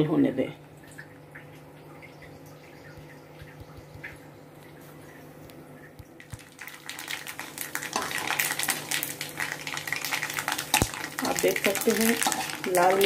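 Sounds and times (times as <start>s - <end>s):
chillies and seeds sizzling in oil: 6.3s - 13.0s
seeds popping: 6.3s - 13.0s
spatula stirring in wok: 10.8s - 13.0s.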